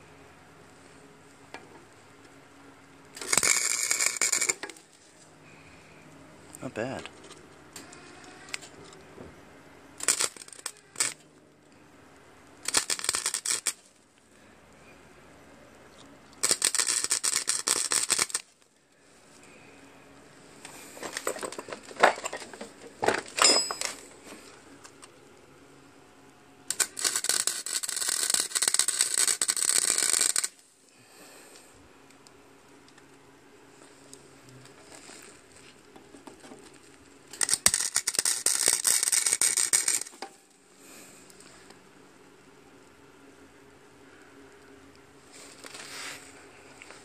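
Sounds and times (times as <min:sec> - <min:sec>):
welder arc crackling: 0:03.1 - 0:05.2, 0:09.9 - 0:11.3, 0:12.2 - 0:14.2, 0:16.2 - 0:18.8, 0:26.6 - 0:33.2, 0:33.8 - 0:40.4.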